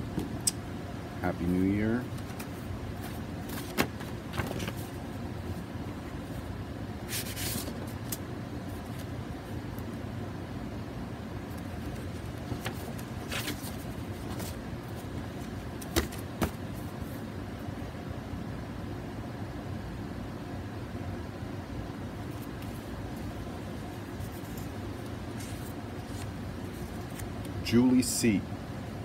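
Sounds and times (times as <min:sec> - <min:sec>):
low room hum: 0:00.0 - 0:29.0
paper rustling: 0:02.1 - 0:05.0, 0:07.1 - 0:09.1, 0:11.5 - 0:17.2, 0:23.8 - 0:27.6.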